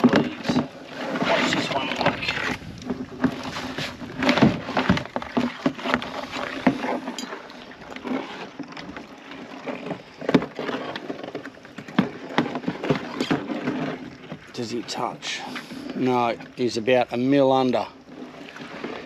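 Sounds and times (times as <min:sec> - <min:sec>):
crab pot knocking and scraping: 0:00.0 - 0:07.4, 0:08.0 - 0:14.4.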